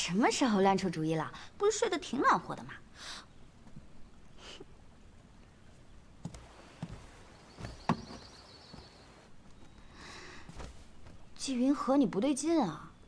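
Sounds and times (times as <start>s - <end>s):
soft knocks: 6.2s - 9.0s.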